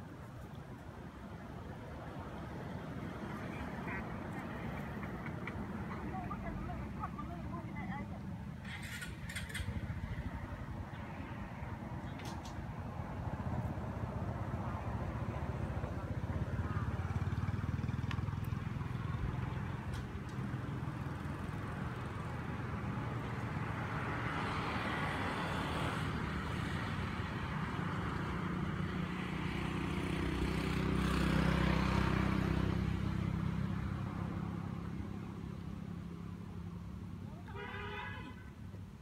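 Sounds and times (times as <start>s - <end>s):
vehicle passing: 2.1s - 37.6s.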